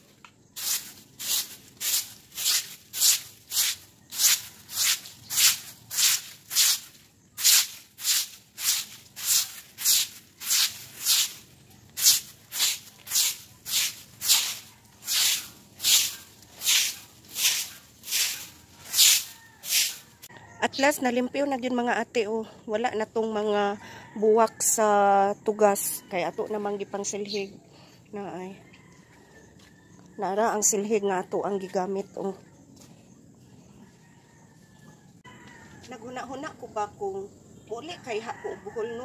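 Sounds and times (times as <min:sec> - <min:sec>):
broom sweeping wet concrete: 0:00.5 - 0:20.3.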